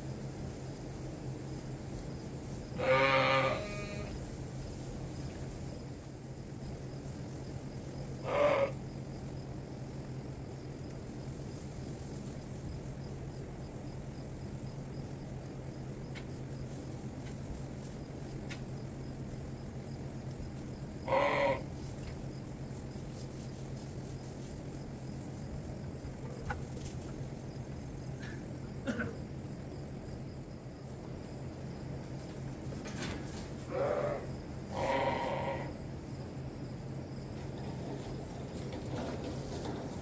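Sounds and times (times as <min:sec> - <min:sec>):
barn fan humming: 0:00.0 - 0:40.0
sheep bleating: 0:02.8 - 0:04.2, 0:08.2 - 0:08.8, 0:21.0 - 0:21.7, 0:33.7 - 0:35.7.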